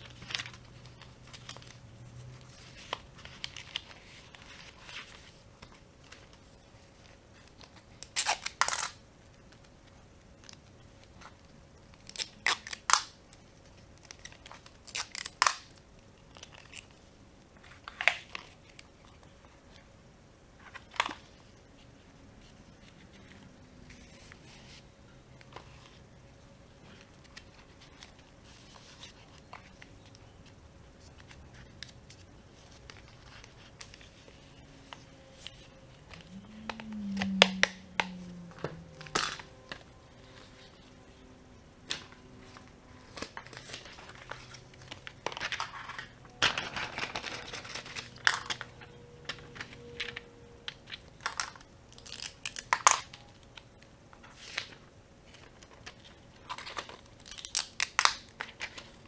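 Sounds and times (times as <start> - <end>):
paper rustling and crinkling: 0.0 - 8.0, 41.9 - 50.2.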